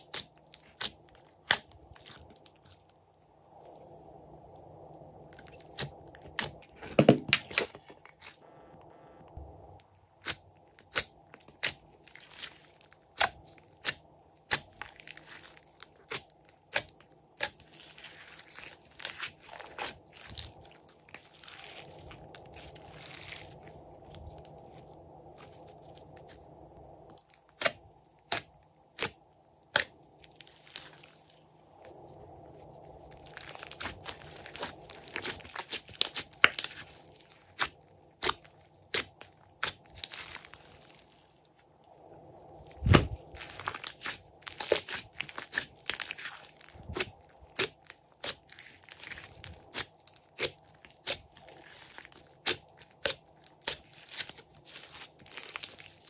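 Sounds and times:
slime squished by hand: 33.0s - 41.2s, 42.8s - 56.0s.

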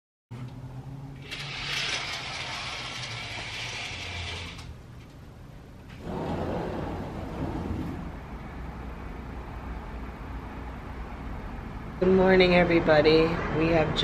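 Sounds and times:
curtain hooks rattling along track: 1.2s - 4.7s
sliding glass door opening: 1.2s - 4.8s, 5.9s - 8.4s
outdoor noise rushing: 5.9s - 12.0s.

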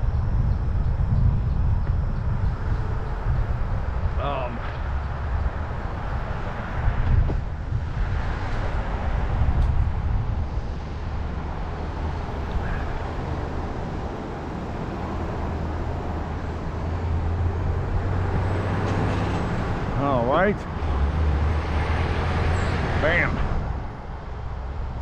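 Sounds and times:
bicycle tyre rumble: 0.0s - 18.6s
wind rush: 0.0s - 25.0s.

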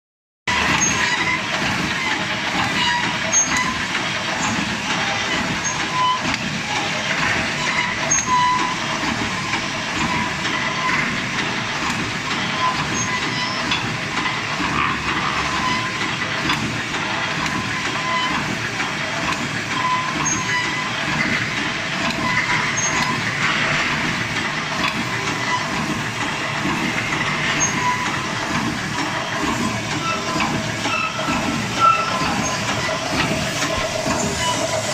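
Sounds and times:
machine mechanical clatter: 0.5s - 34.9s.

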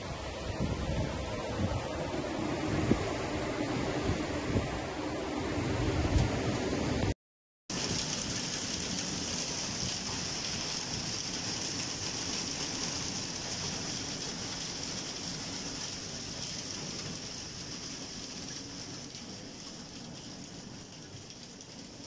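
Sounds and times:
heavy rain and hail on roof: 7.7s - 22.0s.

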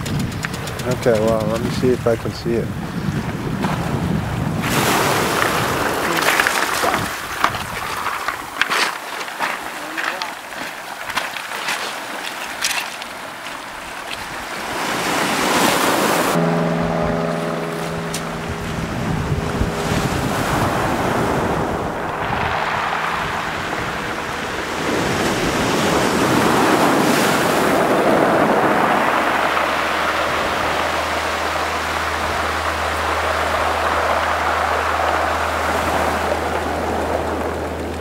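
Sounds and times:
low steady hum: 16.4s - 26.7s, 28.6s - 38.0s
surf washing up pebble beach: 19.8s - 38.0s.

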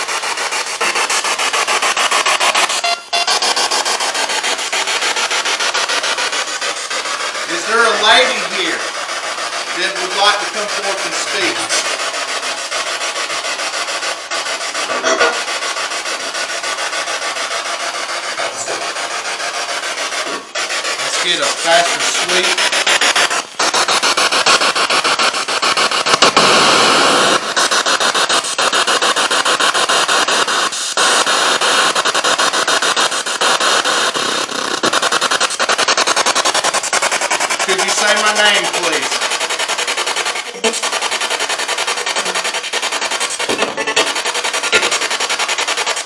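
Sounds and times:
choppy radio static: 0.0s - 13.3s, 14.7s - 15.6s, 18.0s - 46.0s
snatches of broadcast voices: 7.4s - 12.1s, 14.8s - 15.5s, 18.2s - 19.2s, 19.9s - 28.8s, 33.4s - 45.1s.

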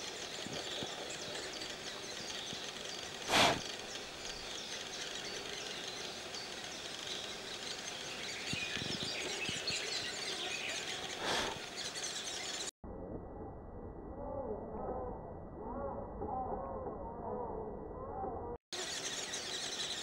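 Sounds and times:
birds chirping: 0.0s - 12.7s, 18.8s - 20.0s.

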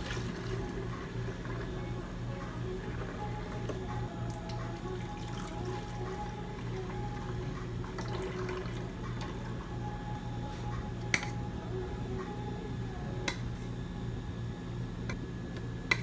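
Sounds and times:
liquid pouring into blender jug: 0.0s - 1.7s, 2.8s - 9.6s
background music: 0.0s - 14.0s.

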